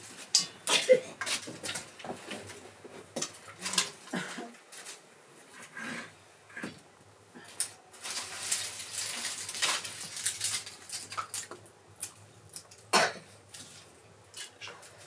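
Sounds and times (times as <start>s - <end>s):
twigs crackling and snapping in fire: 1.2s - 5.0s, 7.4s - 15.0s.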